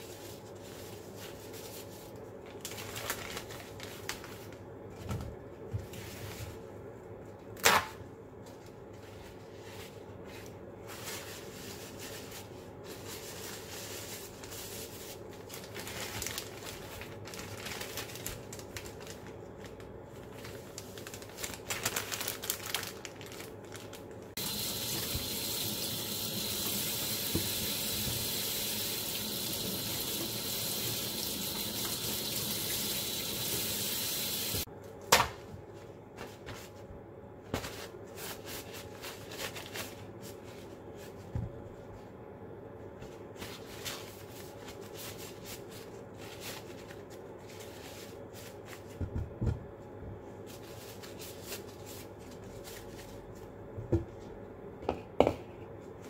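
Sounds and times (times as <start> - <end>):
paper and plastic rustling: 0.0 - 6.7, 8.4 - 25.3, 35.8 - 36.9, 37.5 - 42.0, 43.0 - 49.2, 50.2 - 53.6
tap running into sink: 24.4 - 34.6.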